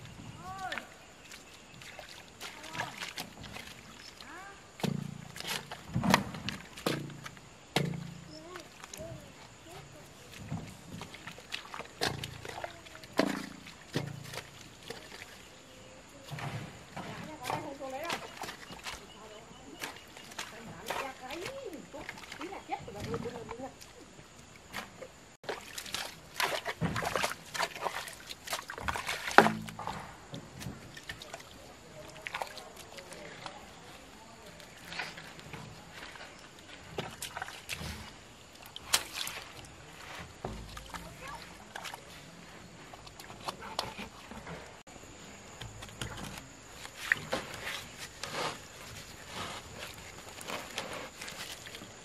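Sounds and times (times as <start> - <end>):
hoe chopping wet mud: 0.0 - 15.6, 16.2 - 23.6, 24.6 - 33.6, 36.9 - 42.1
mud slapping and sloshing: 0.0 - 52.0
plastic pipe knocking and scraping: 4.8 - 8.4, 10.4 - 14.6, 28.8 - 31.2, 40.1 - 41.2.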